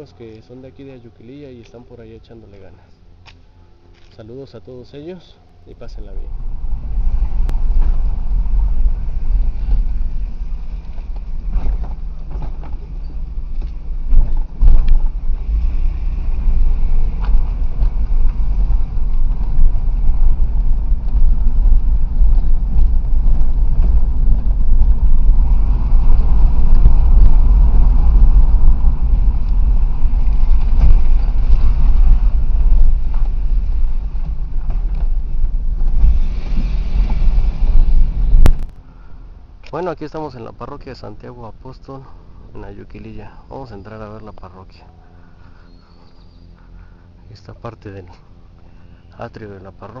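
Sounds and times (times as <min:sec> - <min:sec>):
car engine and road rumble: 0:00.0 - 0:50.0
wind buffeting microphone: 0:05.7 - 0:40.1.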